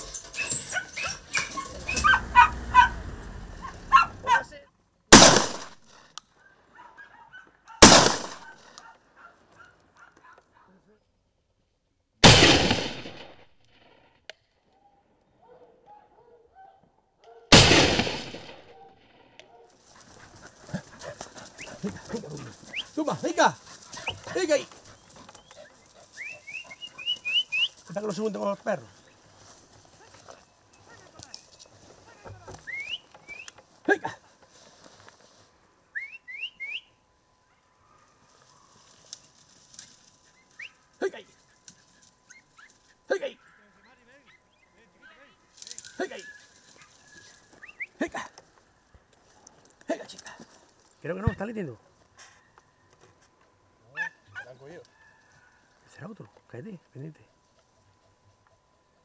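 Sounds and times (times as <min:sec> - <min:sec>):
shotgun shot: 0:05.1 - 0:05.8, 0:07.8 - 0:08.6, 0:12.2 - 0:13.5, 0:17.5 - 0:18.7
short rising whistles: 0:26.2 - 0:27.8, 0:32.6 - 0:33.5, 0:35.9 - 0:37.0.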